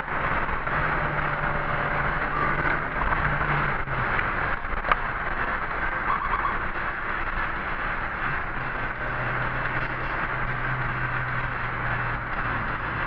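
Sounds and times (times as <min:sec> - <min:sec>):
car engine hum and road noise: 0:00.0 - 0:13.0.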